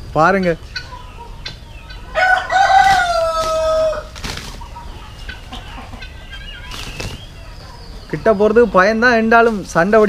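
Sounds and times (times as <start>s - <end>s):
rooster crowing: 1.8s - 4.2s.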